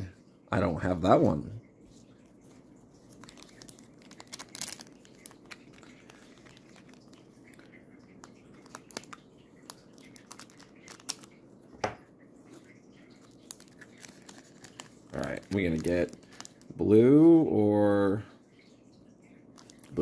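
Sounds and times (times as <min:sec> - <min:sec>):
foil wrapper crinkling: 0:03.0 - 0:11.4, 0:13.1 - 0:17.2, 0:19.6 - 0:20.0.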